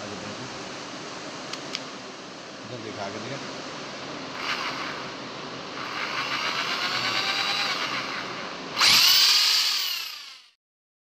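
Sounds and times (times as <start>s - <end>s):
drill motor whine: 4.4s - 5.2s, 5.8s - 10.6s.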